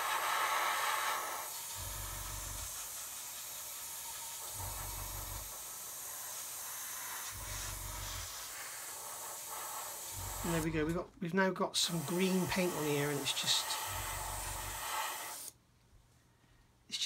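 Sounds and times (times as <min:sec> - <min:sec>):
airbrush hissing: 0:00.0 - 0:15.6
low hum: 0:01.8 - 0:02.8, 0:04.6 - 0:05.6, 0:07.4 - 0:08.3, 0:10.2 - 0:11.2.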